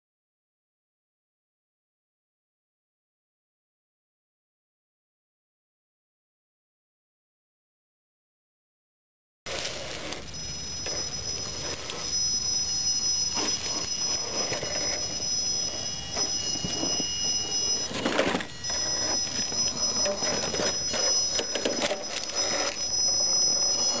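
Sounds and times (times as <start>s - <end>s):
toy truck motor whining: 9.5s - 24.0s.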